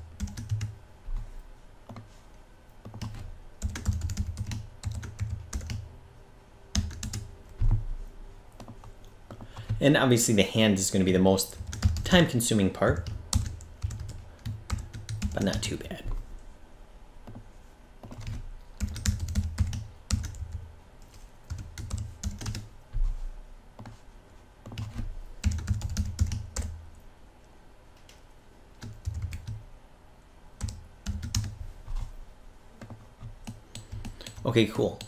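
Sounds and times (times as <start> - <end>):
typing on computer keyboard: 0.2 - 0.8, 2.8 - 5.8, 6.7 - 7.8, 11.5 - 12.2, 12.9 - 15.7, 18.0 - 22.7, 24.6 - 26.8, 28.8 - 29.6, 30.6 - 31.6, 32.8 - 35.0.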